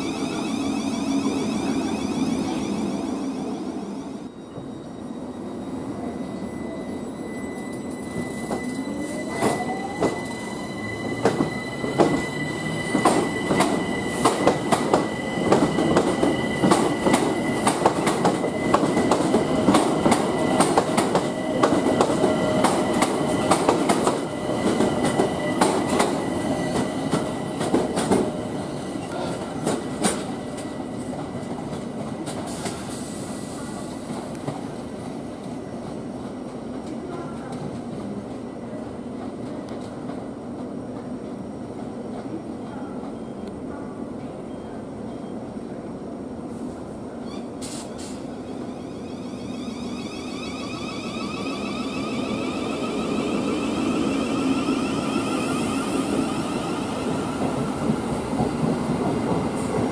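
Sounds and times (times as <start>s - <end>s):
train traction motors whining: 0.0s - 4.4s
high wheel squeal: 0.0s - 23.6s, 48.4s - 57.6s.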